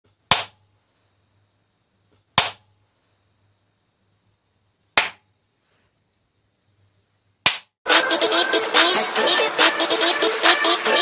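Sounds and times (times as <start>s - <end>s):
sharp hand claps: 5.0s - 5.2s, 7.5s - 7.7s.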